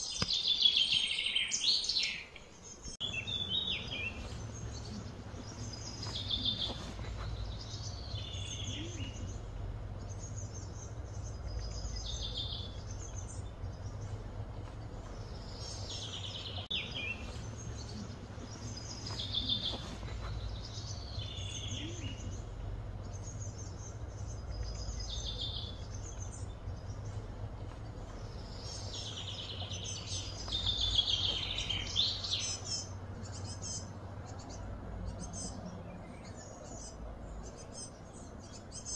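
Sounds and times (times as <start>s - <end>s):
low outdoor rumble: 0.0s - 38.9s.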